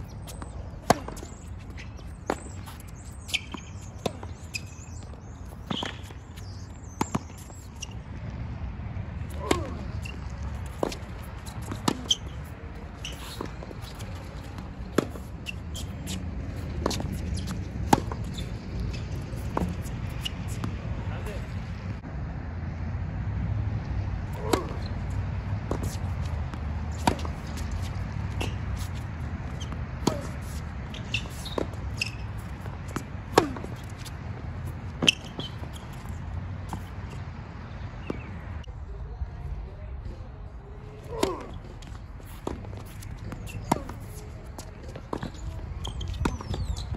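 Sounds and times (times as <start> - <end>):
shoes squeaking on court: 0.0 - 22.0, 24.2 - 38.7, 40.1 - 46.9
tennis ball bouncing: 0.1 - 8.4, 9.1 - 21.0, 24.2 - 38.6, 41.1 - 46.9
tennis ball struck by racket: 0.3 - 4.4, 9.2 - 20.8, 24.4 - 37.3, 41.1 - 41.6, 42.3 - 46.9.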